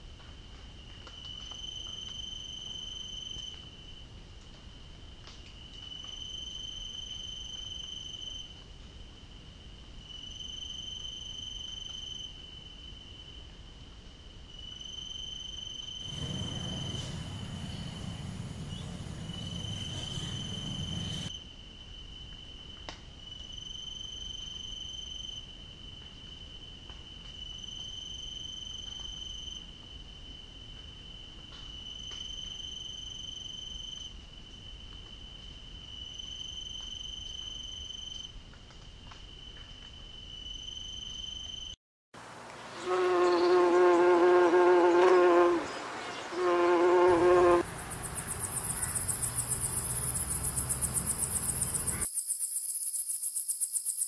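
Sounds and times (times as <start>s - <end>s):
cricket trilling: 14.7s - 21.4s, 42.6s - 54.0s
rushing noise with low rumble: 16.1s - 21.3s.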